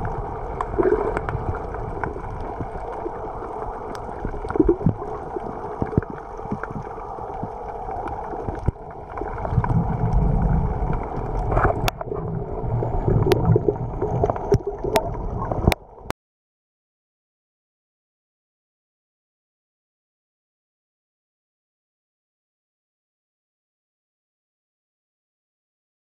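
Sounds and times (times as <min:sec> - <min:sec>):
underwater water hiss: 0:00.0 - 0:15.6
deep gurgling surges: 0:00.0 - 0:16.0
sharp underwater clicks: 0:10.9 - 0:12.2, 0:13.2 - 0:15.9.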